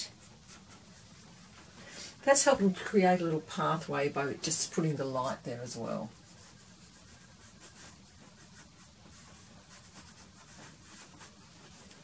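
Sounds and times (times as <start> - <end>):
pastel stick scratching on paper: 0.0 - 1.8, 4.6 - 12.0
low steady hum: 0.0 - 12.0.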